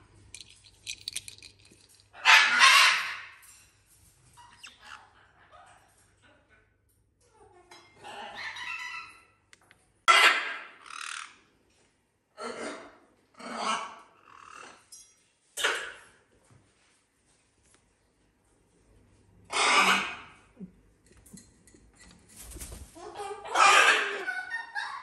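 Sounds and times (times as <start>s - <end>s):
parrot screeching calls: 2.2s - 3.4s, 19.5s - 20.3s, 23.1s - 25.0s.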